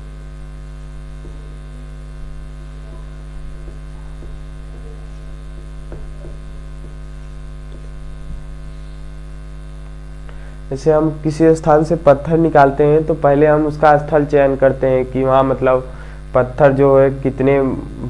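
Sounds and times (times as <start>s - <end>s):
electrical mains hum: 0.0s - 18.0s
marker writing on whiteboard: 2.2s - 9.1s.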